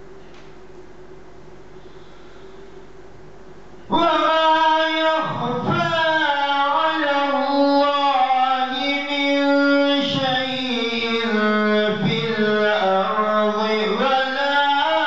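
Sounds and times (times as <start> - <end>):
man reciting melodically: 3.9 - 15.0.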